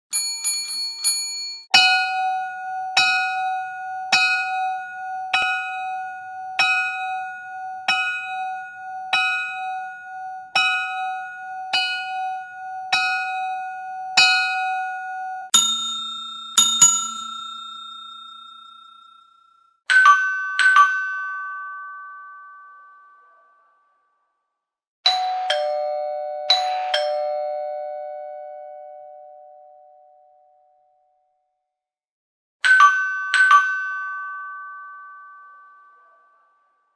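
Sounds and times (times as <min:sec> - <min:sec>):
bell struck ringing: 0:01.7 - 0:19.1
lower-toned bell strikes: 0:01.8 - 0:18.8.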